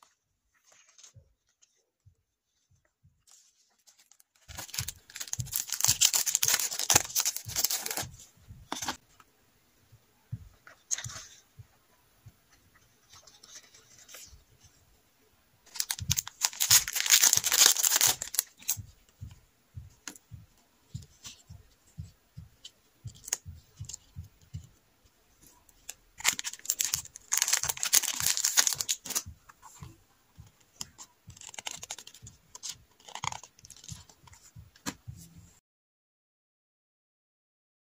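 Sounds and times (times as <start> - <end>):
plastic packaging rustling: 3.4 - 9.0, 15.7 - 18.8, 25.8 - 29.9.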